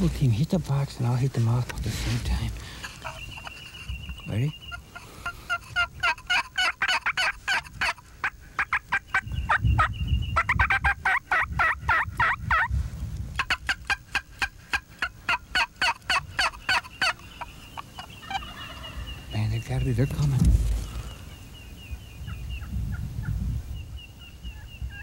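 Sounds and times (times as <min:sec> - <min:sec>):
turkey call yelps: 0:04.7 - 0:12.7, 0:13.4 - 0:19.2.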